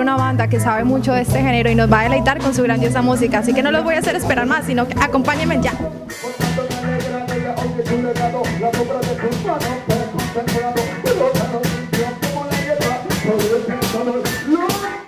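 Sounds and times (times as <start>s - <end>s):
drum kit beat: 0.0s - 15.0s
reggae band playing: 0.0s - 15.0s
man singing: 1.7s - 15.0s.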